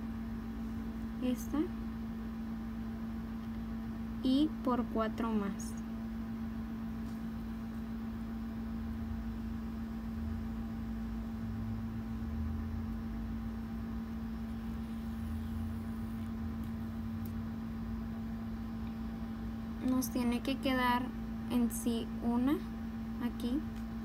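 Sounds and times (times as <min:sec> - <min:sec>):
room noise: 0:00.0 - 0:24.0
steady low hum: 0:00.0 - 0:24.0.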